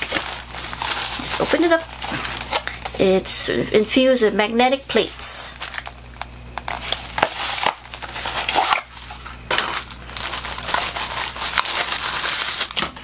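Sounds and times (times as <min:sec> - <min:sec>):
cardboard box crinkling: 0:00.0 - 0:03.0, 0:05.5 - 0:06.0, 0:06.7 - 0:13.0.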